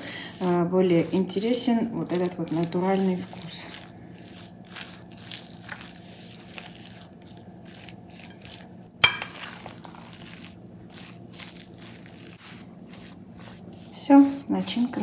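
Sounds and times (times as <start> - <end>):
spoon scraping and mashing food: 0.0 - 15.0
spoon clinking against bowl: 9.0 - 9.5.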